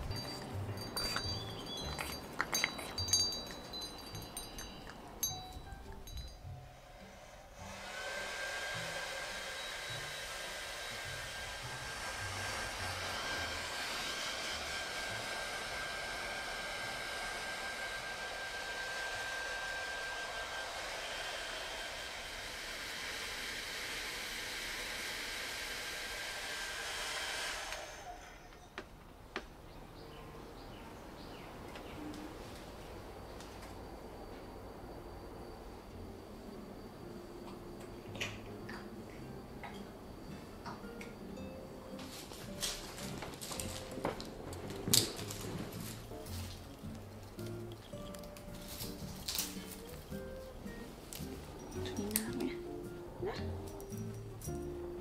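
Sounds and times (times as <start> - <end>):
hair dryer running: 6.8 - 28.6.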